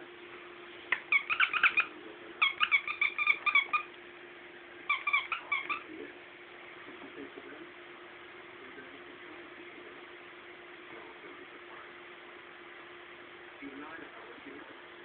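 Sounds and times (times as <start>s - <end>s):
rubber squeaky toy squeaking: 1.1s - 3.9s, 4.9s - 5.9s.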